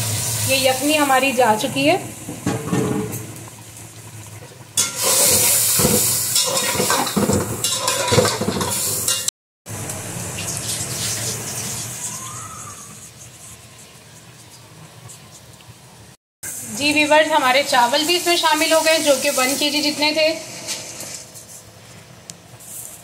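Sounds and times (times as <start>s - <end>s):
stock sizzling and bubbling: 0.0s - 23.0s
metal spatula stirring pot: 6.4s - 9.3s.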